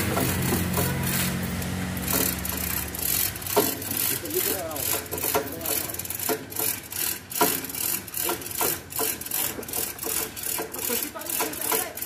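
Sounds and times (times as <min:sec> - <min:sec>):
chain hoist chain running: 0:00.0 - 0:12.0.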